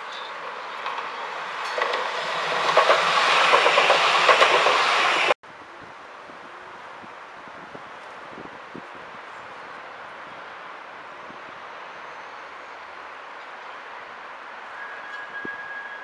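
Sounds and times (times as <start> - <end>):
tram passing: 0.0 - 5.4
wheel clatter over track: 0.0 - 5.4
street background noise: 0.0 - 16.0.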